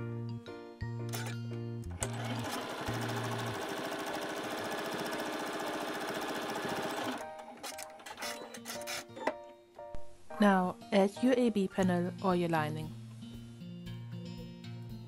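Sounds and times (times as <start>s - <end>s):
light background music: 0.0s - 15.0s
electric sewing machine stitching: 2.0s - 9.1s.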